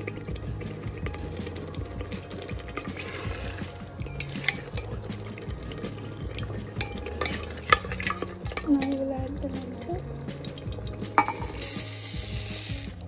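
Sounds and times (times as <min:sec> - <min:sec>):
spoon stirring thick mixture: 0:00.0 - 0:12.4
spoon scraping against pan: 0:02.8 - 0:05.0, 0:06.8 - 0:08.9.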